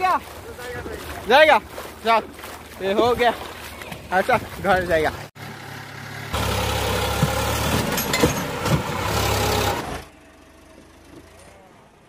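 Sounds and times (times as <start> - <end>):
diesel tractor engine running: 4.4 - 12.0.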